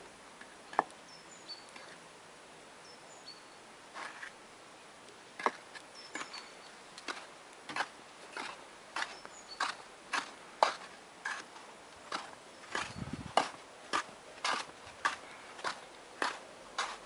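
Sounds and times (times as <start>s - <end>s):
small bird chirping: 0.7s - 2.0s, 2.8s - 3.6s, 5.8s - 6.9s, 9.0s - 9.9s, 12.5s - 13.3s
footsteps crunching in snow: 6.1s - 17.0s.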